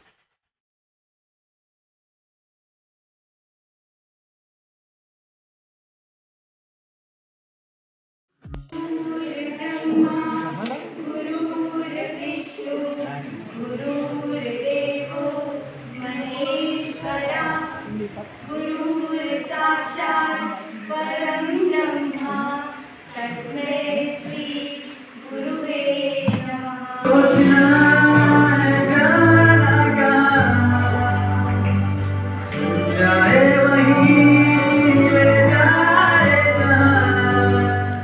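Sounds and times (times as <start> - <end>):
young women singing into microphone: 8.8 - 38.0
young man singing into microphone: 26.2 - 31.9, 32.5 - 38.0
backing music with low note: 26.3 - 38.0.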